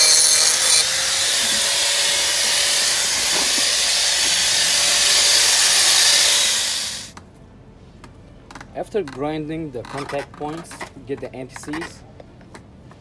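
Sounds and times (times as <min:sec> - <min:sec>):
angle grinder whining: 0:00.0 - 0:07.1.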